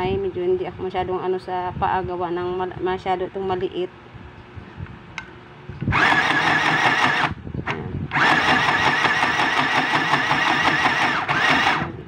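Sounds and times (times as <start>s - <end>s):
sewing machine stitching: 5.9s - 7.4s, 8.1s - 12.0s.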